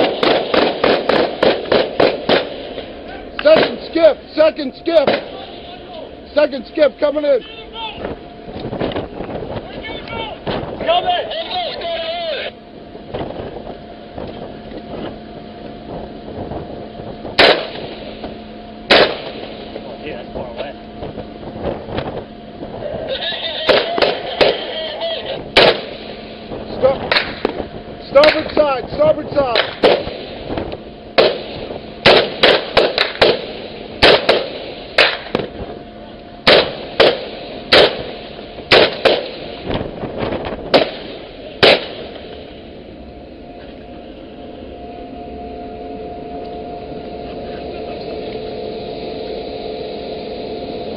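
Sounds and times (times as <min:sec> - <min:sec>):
rifle shots: 0:00.0 - 0:02.8, 0:03.5 - 0:03.8, 0:05.0 - 0:05.4, 0:17.4 - 0:17.9, 0:18.9 - 0:19.5, 0:23.7 - 0:24.7, 0:25.6 - 0:26.0, 0:29.6 - 0:30.3, 0:31.2 - 0:35.5, 0:36.4 - 0:39.6, 0:40.7 - 0:42.2
steady hum: 0:00.0 - 0:50.9.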